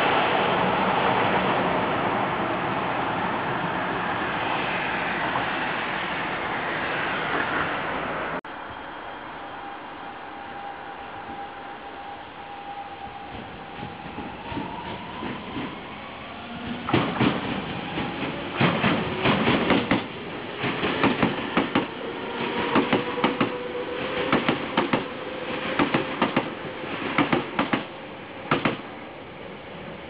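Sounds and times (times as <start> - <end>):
train rumble: 0.0 - 30.0
train wheels clattering over rail joints: 16.6 - 23.6, 28.5 - 28.8.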